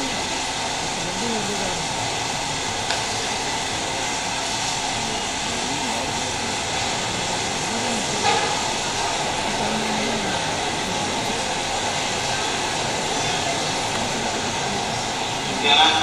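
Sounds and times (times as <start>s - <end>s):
steady loud hiss: 0.0s - 16.0s.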